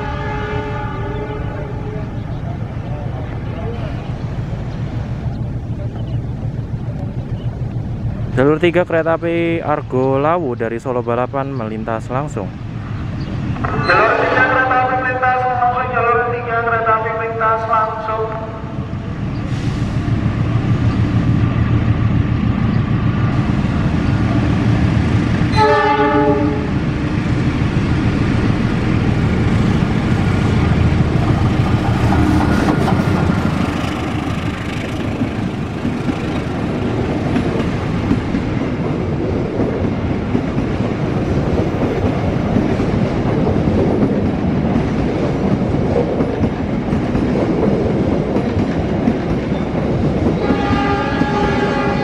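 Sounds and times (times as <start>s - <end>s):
train horn blast: 0.0s - 2.1s, 13.7s - 15.2s, 25.5s - 26.7s, 50.4s - 52.0s
train rumbling on rails: 0.0s - 52.0s.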